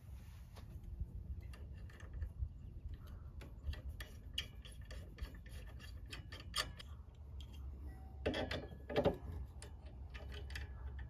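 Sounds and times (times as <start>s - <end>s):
small metal clicks and ticks: 1.3s - 11.0s.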